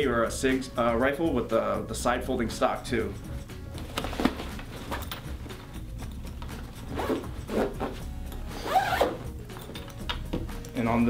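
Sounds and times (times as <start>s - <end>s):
zipper being pulled closed: 6.8s - 9.4s.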